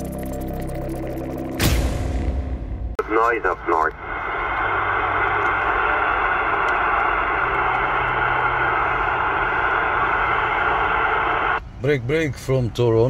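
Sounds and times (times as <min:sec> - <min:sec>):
radio static hiss: 0:03.0 - 0:11.6.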